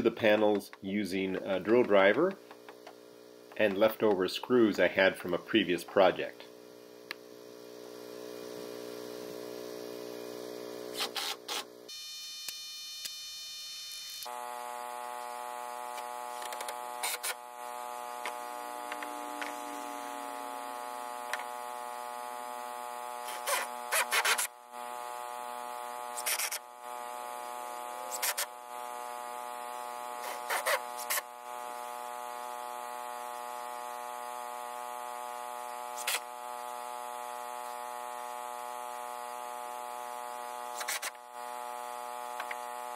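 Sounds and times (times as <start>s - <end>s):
generator humming: 0.0s - 12.0s, 14.2s - 42.9s
drill driver driving screws: 10.9s - 11.7s, 23.2s - 24.5s, 26.2s - 26.6s, 30.2s - 31.3s, 40.8s - 41.2s.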